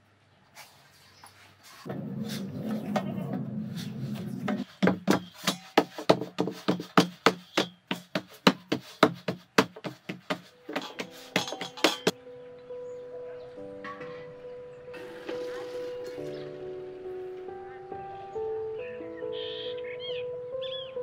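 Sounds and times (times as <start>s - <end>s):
dough rubbing and kneading: 0.6s - 12.1s
hands slapping dough on steel plate: 4.5s - 12.1s.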